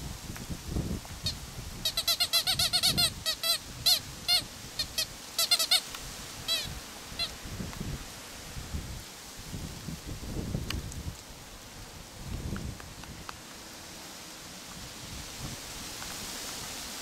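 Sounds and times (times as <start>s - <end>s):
squeaky dog toy squeaking: 1.2s - 5.8s, 6.5s - 7.3s.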